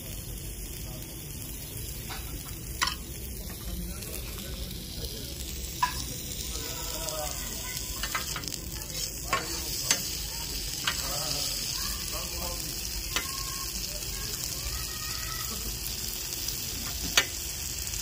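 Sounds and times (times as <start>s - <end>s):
food sizzling on hot griddle: 0.0s - 18.0s
metal spatulas clicking on steel: 8.0s - 10.2s.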